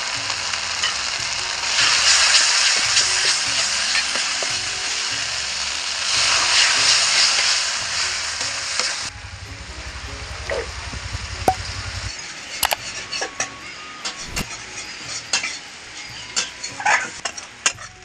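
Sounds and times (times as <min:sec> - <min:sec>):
spices sizzling in hot oil: 0:00.0 - 0:13.0
low hum: 0:09.0 - 0:12.8.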